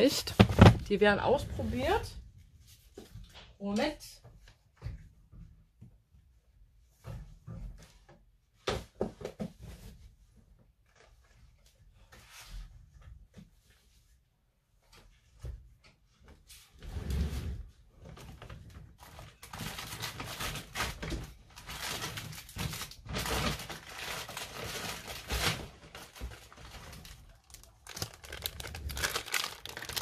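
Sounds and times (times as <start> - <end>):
plastic packaging crinkling: 19.4 - 30.0.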